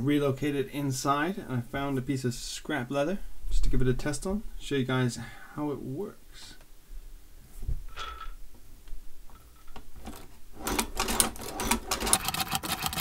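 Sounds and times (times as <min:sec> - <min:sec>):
sewing machine clicking: 0:10.0 - 0:13.0.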